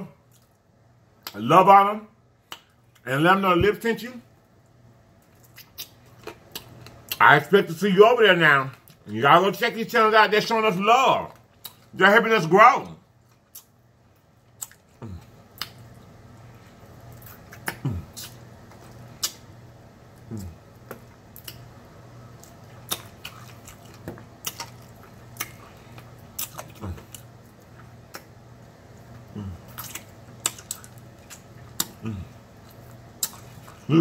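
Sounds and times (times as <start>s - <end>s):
steady low hum: 0.0s - 34.0s
man chewing and sucking meat: 4.5s - 7.2s, 11.3s - 12.0s, 13.1s - 34.0s
wet lip smacks: 5.3s - 7.2s, 15.5s - 15.9s, 17.2s - 19.5s, 22.4s - 25.6s, 29.7s - 32.0s.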